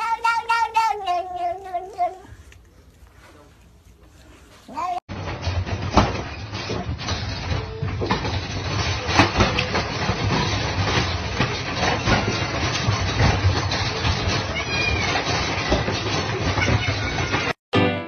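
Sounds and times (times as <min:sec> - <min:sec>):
cats fighting: 0:00.0 - 0:03.2, 0:08.4 - 0:17.6
metal crate rattling: 0:05.1 - 0:17.6.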